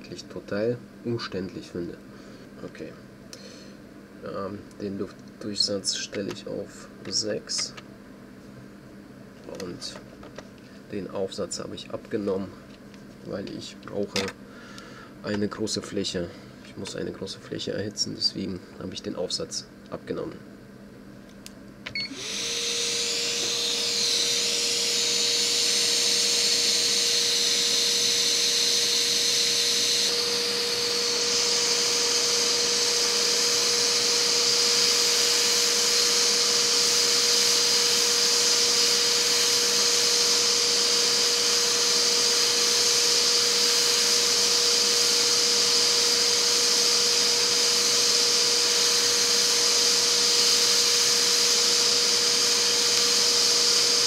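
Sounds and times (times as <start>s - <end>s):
hot air blower hissing: 21.9s - 54.0s.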